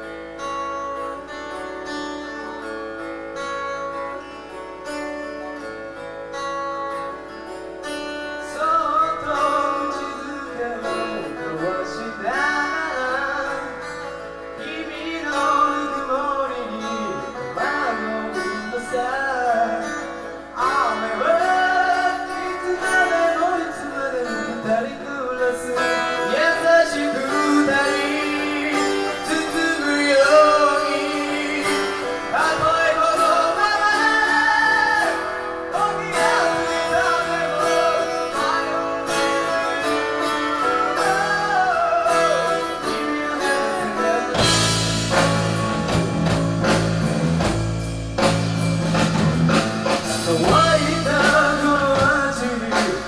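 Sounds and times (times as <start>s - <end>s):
live rock band playing: 0.0s - 53.0s
picked electric guitar notes: 0.0s - 53.0s
lead vocal singing: 8.4s - 46.8s, 49.9s - 53.0s.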